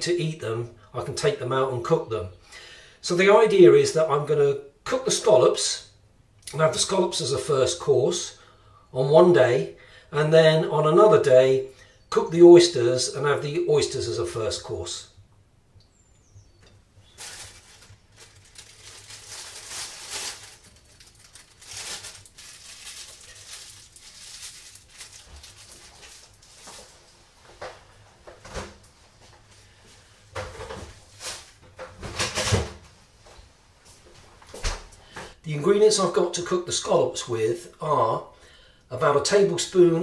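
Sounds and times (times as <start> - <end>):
plastic bag crinkling: 17.0 - 27.5.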